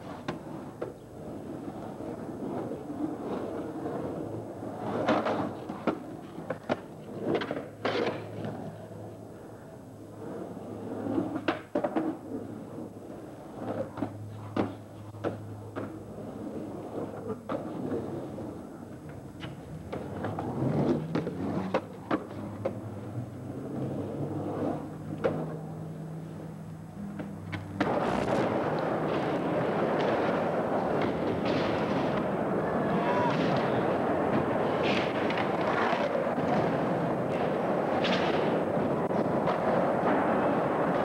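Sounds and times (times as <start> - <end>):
skateboard clacks and knocks: 0.0 - 9.6, 10.2 - 41.0
skateboard wheels rolling on concrete: 0.0 - 41.0
loud steady rushing noise: 27.7 - 30.9.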